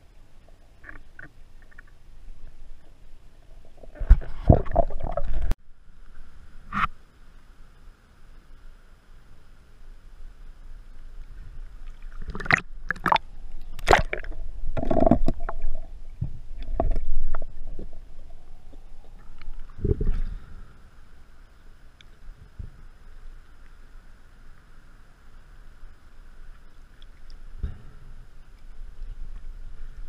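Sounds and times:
water splashing and gurgling: 0.0 - 5.6, 11.6 - 20.6.

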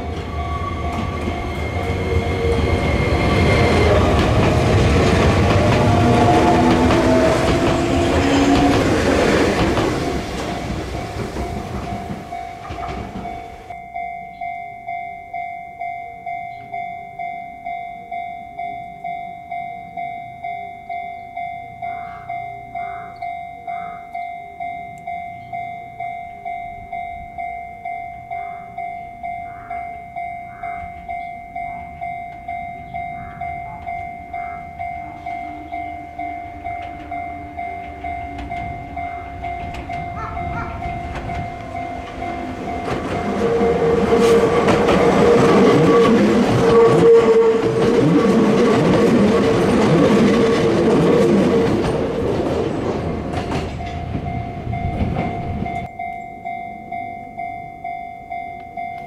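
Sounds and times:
train wheel and rail noise: 0.0 - 59.0
electronic level crossing bell: 10.9 - 44.2, 53.7 - 59.0.

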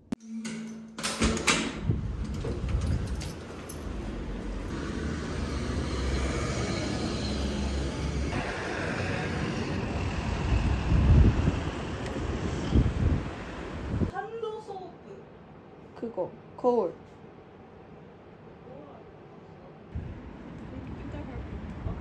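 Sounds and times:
door opening: 0.2 - 4.8
traffic rumble: 1.8 - 14.2, 19.0 - 22.0.

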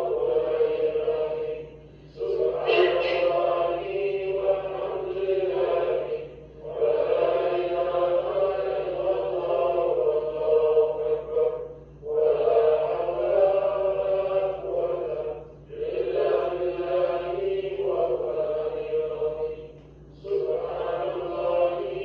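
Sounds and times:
voices chanting together: 0.0 - 22.0.

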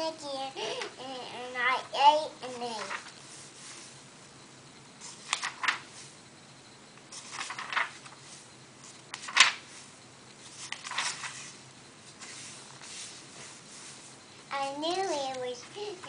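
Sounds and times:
book pages rustling: 2.8 - 3.9, 5.0 - 6.1, 7.1 - 15.4.

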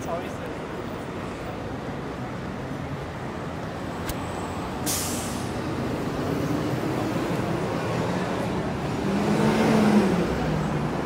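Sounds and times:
city street traffic: 0.0 - 11.0
heavy vehicle engine: 0.2 - 11.0
air brake hiss: 4.8 - 5.6.

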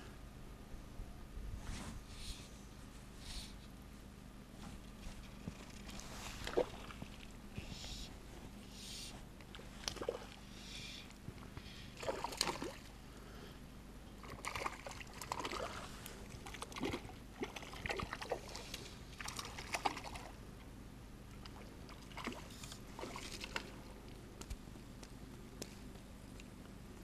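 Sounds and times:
water sloshing and splashing: 4.8 - 7.5, 9.4 - 10.5, 12.0 - 13.0, 14.2 - 20.4, 21.3 - 24.2.

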